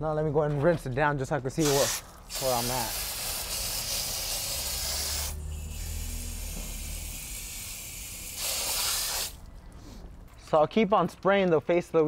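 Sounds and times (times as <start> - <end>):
water spraying on wheel: 1.6 - 9.7.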